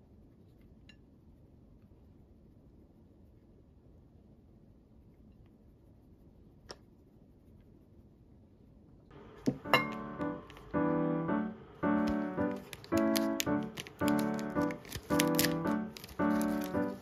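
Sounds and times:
background piano music: 9.1 - 17.0.

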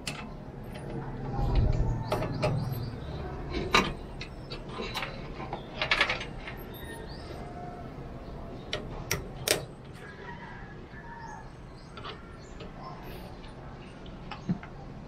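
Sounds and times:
dull low rumble: 0.9 - 4.2.

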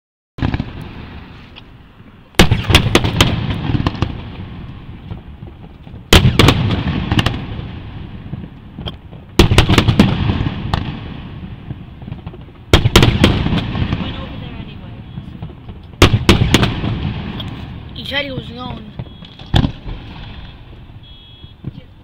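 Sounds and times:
fireworks shells bursting: 15.2 - 21.7.

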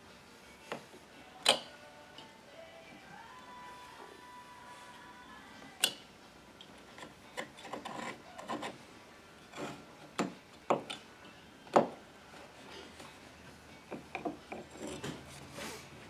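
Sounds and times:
knife blade scraping: 7.6 - 8.8.

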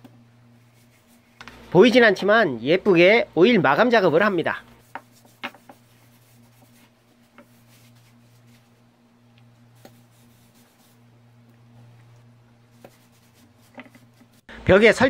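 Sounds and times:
steady low hum: 0.0 - 15.0
cloth rubbing on wood: 0.5 - 1.6, 4.2 - 8.9, 9.6 - 14.5.

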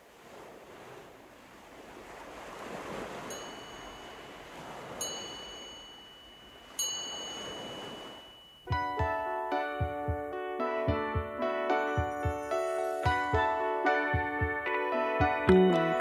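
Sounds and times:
surf washing in and out: 0.0 - 9.1, 11.5 - 16.0
ringing chime strikes: 3.3 - 9.1.

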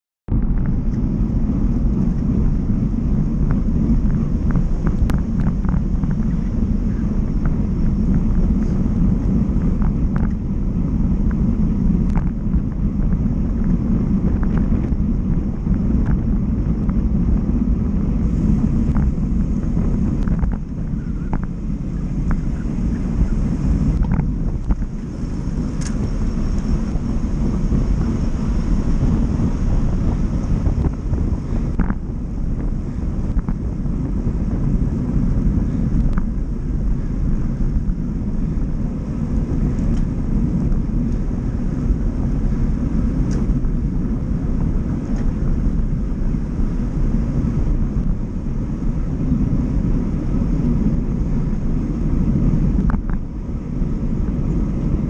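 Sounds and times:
road and traffic noise: 0.3 - 55.0
wind rushing over microphone: 0.3 - 55.0
sharp clicks from bike: 23.9 - 30.3, 39.4 - 41.2, 43.2 - 43.7.

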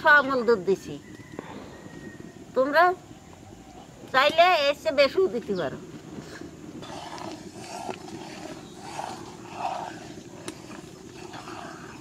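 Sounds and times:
milk heating in wok hissing: 5.8 - 12.0
ladle scraping wok: 6.8 - 12.0.

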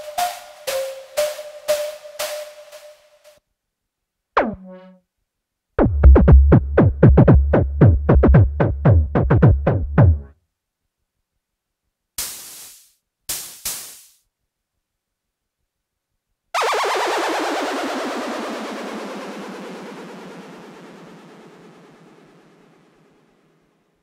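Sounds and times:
synth pitch-dropping hits: 4.4 - 5.0
synthesizer falling zap: 4.4 - 5.0, 16.6 - 23.4
heavy synth bass: 5.8 - 10.3
noisy snare-like synth hits: 5.8 - 10.3, 12.2 - 14.2.

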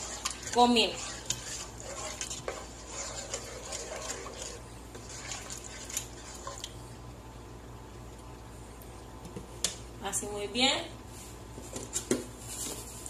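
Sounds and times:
spoon stirring sauce in pot: 0.0 - 6.8.

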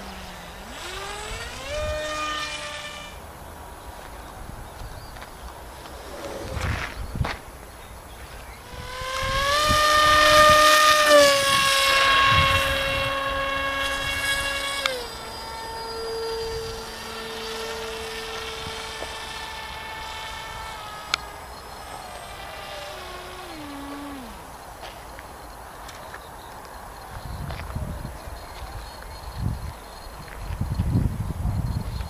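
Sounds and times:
model plane motor whine: 0.0 - 4.1, 8.0 - 25.2.

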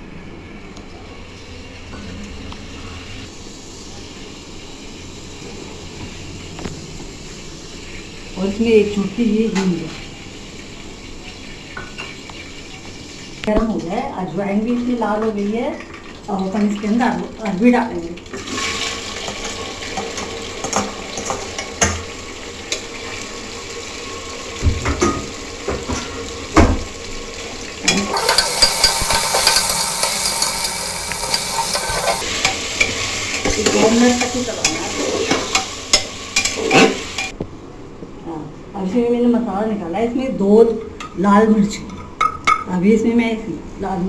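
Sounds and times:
food sizzling in hot oil: 3.2 - 13.4, 18.3 - 37.4
metal spatula scraping a pot: 28.1 - 32.6.

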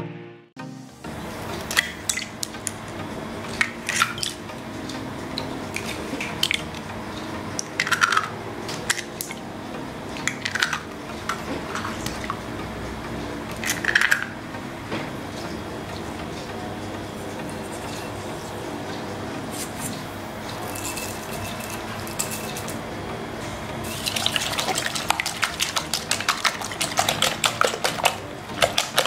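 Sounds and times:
eggs plopping into bowl: 7.6 - 9.4, 13.5 - 14.4, 24.0 - 29.0
bowl clinking on glass: 20.6 - 22.8.

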